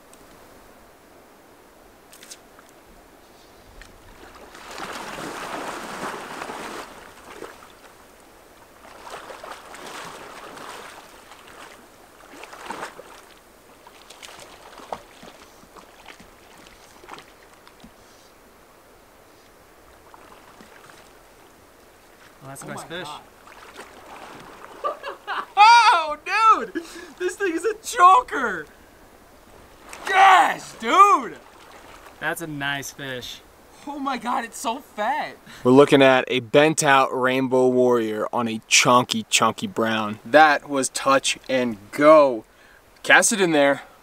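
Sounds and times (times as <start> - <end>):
water splashing around waders: 2.1 - 33.7.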